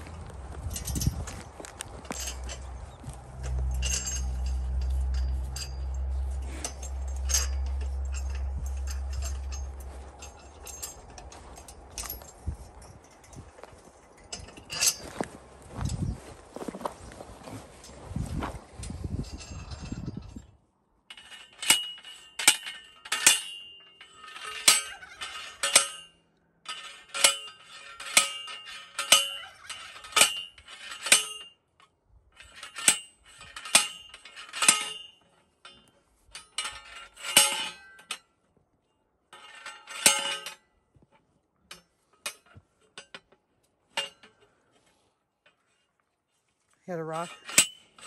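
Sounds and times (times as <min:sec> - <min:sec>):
metal clangs of post driving: 0:02.0 - 0:15.2, 0:21.1 - 0:31.6, 0:32.4 - 0:38.3, 0:39.4 - 0:40.7, 0:41.7 - 0:44.6, 0:47.2 - 0:48.0.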